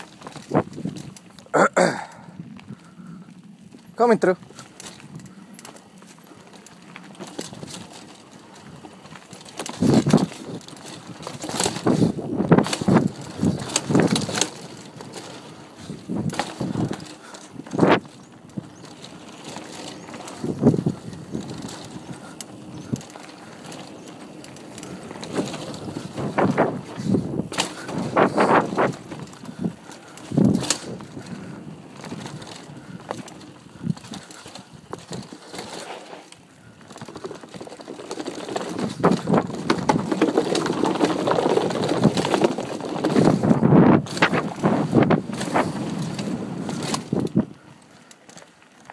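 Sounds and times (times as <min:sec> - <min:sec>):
bike knocks and rattles: 0:00.0 - 0:02.9, 0:04.4 - 0:48.9
bicycle tyres on dirt: 0:00.0 - 0:48.9
wind on microphone: 0:09.7 - 0:24.0, 0:24.8 - 0:35.4, 0:38.7 - 0:47.6.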